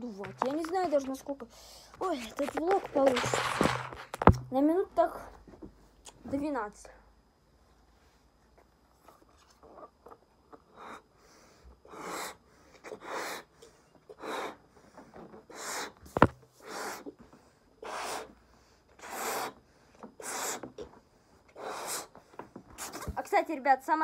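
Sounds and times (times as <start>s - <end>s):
handling noises: 0.0s - 4.5s
breaths blown into balloon: 11.8s - 13.5s, 14.1s - 14.6s, 15.5s - 17.2s, 17.8s - 18.4s, 19.0s - 19.6s, 20.2s - 20.8s, 21.5s - 23.2s
balloon squeak: 15.5s - 17.1s, 17.8s - 18.3s, 19.0s - 19.6s, 20.2s - 20.8s, 21.6s - 22.1s, 22.8s - 23.2s.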